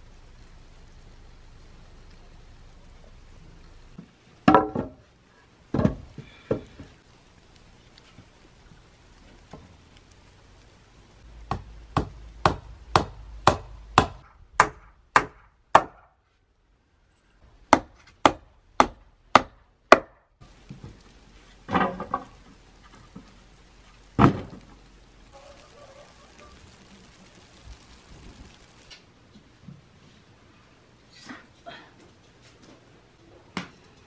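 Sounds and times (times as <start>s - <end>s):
hammer striking wooden boards: 4.5s - 5.0s, 11.5s - 16.1s, 17.7s - 20.2s
wooden clatter: 21.6s - 23.4s.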